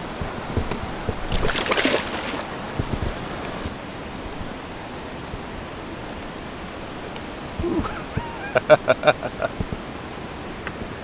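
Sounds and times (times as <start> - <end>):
water noise: 0.0 - 11.0
wind: 0.0 - 11.0
fish splashing: 1.1 - 2.8.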